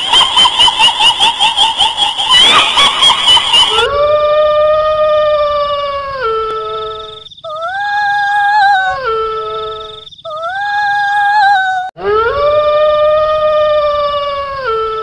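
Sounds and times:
long howling wails: 3.7s - 9.8s, 10.5s - 15.0s.

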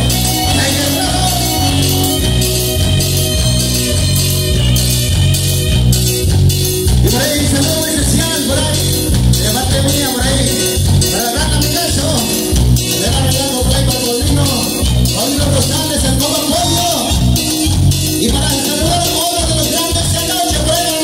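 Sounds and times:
person singing: 0.0s - 5.3s
live band playing through speakers: 0.0s - 21.0s
pulsing bass beat: 0.0s - 21.0s.

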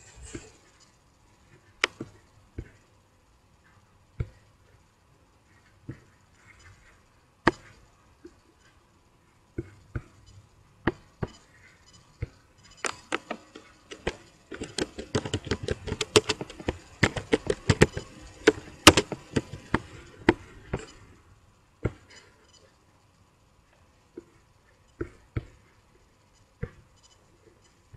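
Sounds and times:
keyboard key clicks: 12.8s - 19.2s
mouse clicks: 12.8s - 19.2s.

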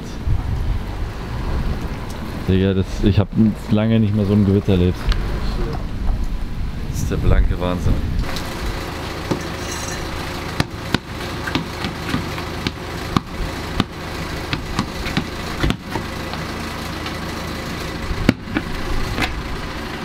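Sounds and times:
basketball bouncing on paving: 9.3s - 9.6s, 10.5s - 17.2s, 18.2s - 19.4s.

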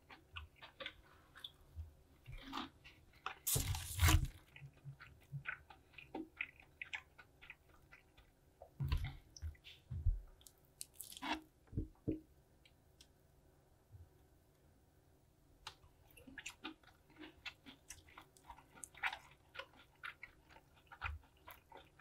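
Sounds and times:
fried chicken crunching: 2.4s - 8.2s, 10.8s - 11.4s
small crackles of food handled: 10.4s - 11.5s.

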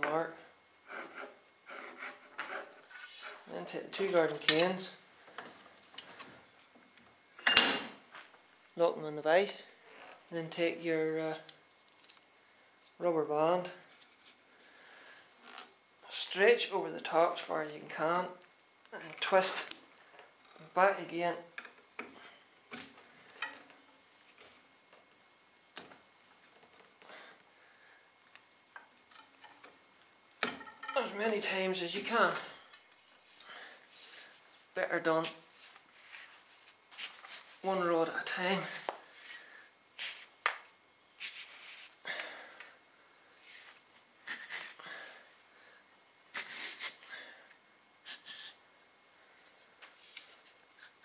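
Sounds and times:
soft rustle: 35.4s - 37.7s, 41.2s - 42.0s.

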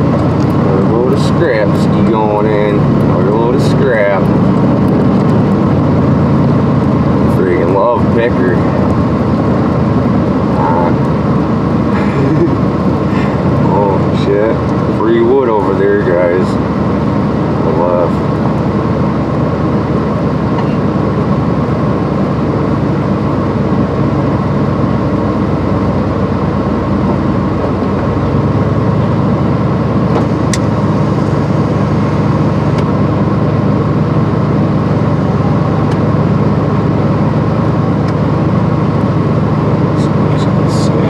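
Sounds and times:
truck engine running: 0.0s - 41.0s.

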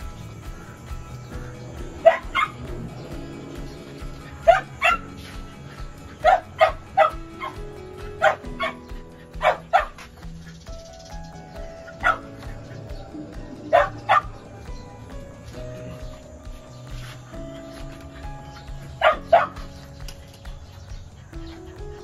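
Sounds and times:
background music: 0.0s - 22.0s
dog barking: 2.0s - 2.7s, 4.2s - 5.4s, 6.0s - 10.2s, 11.9s - 12.8s, 13.7s - 14.4s, 17.6s - 19.8s.

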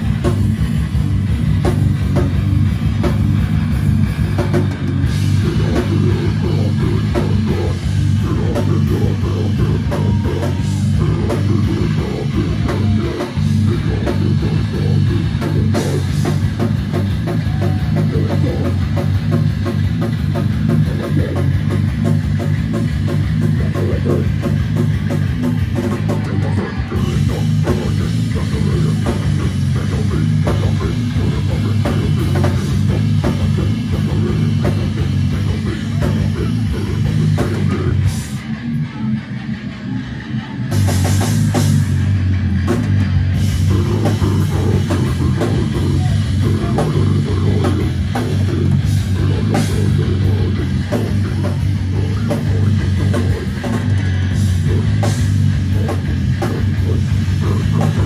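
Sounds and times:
live heavy rock band playing: 0.0s - 58.0s.

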